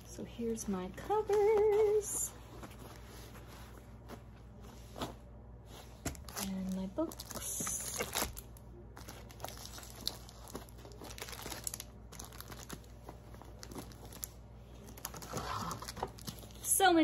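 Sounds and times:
plastic wrapping crinkling: 0:00.6 - 0:04.3, 0:06.0 - 0:16.9.

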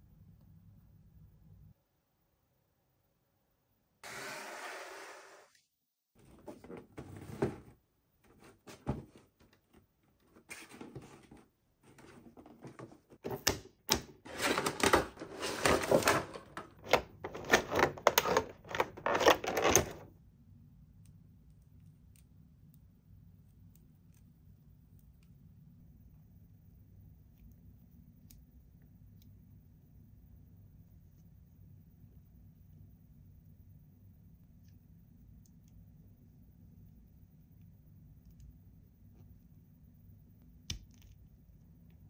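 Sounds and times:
faint low hum: 0:00.0 - 0:04.0, 0:18.4 - 0:42.0
toy packaging clicks and rustles: 0:14.3 - 0:20.0.

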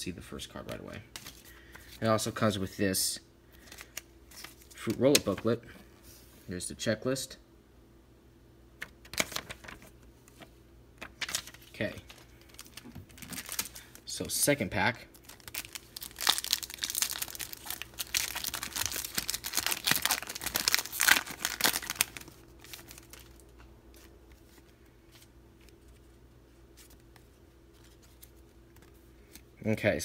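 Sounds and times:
cards clicking and rustling: 0:01.2 - 0:02.0, 0:08.8 - 0:13.9, 0:26.8 - 0:29.5
foil wrapper crinkling and tearing: 0:11.1 - 0:14.2, 0:15.1 - 0:23.6.

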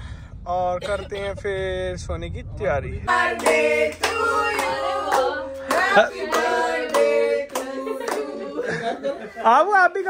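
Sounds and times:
people singing together: 0:03.0 - 0:09.5
hands clapping in time: 0:03.4 - 0:08.3.

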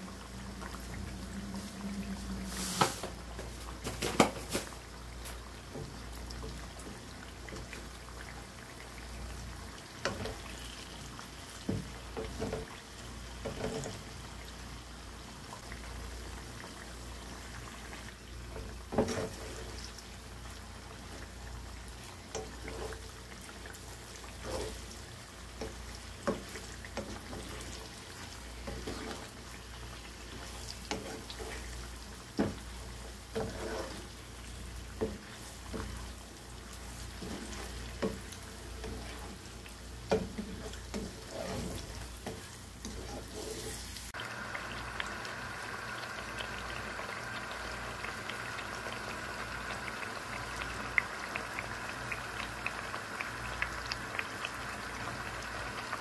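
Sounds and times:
food sizzling in hot oil: 0:00.0 - 0:56.0
wooden spatula scraping pot: 0:18.6 - 0:20.0, 0:22.3 - 0:23.2, 0:24.2 - 0:25.0, 0:25.6 - 0:29.5, 0:30.3 - 0:31.8, 0:32.4 - 0:36.2, 0:36.8 - 0:43.9.

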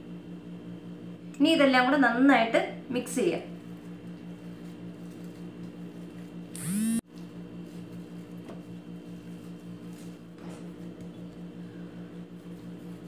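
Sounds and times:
pulsing electrical hum: 0:00.0 - 0:13.0
short rising whine: 0:06.6 - 0:07.0.

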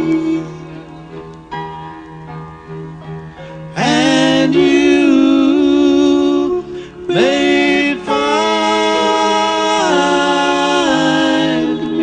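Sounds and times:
male duo singing in harmony: 0:00.0 - 0:00.6, 0:03.8 - 0:12.0.

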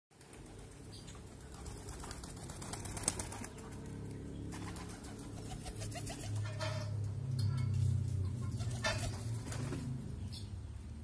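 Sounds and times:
pigeon wings flapping: 0:00.1 - 0:06.6.

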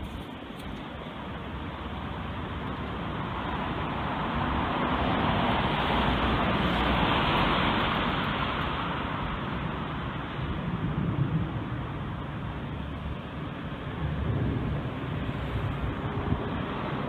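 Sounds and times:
jet airliner passing overhead: 0:13.6 - 0:17.0.

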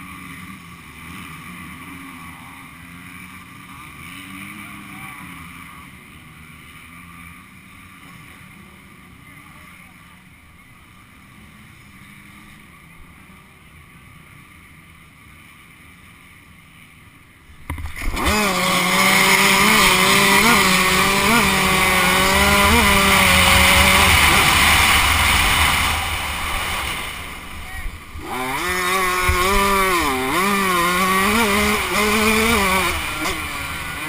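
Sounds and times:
dirt bike engine revving: 0:00.0 - 0:08.2, 0:17.5 - 0:34.0
rushing wind: 0:17.6 - 0:34.0.

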